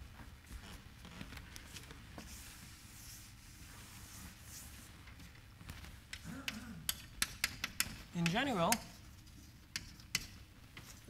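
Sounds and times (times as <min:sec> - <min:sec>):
room hum: 0:00.0 - 0:11.0.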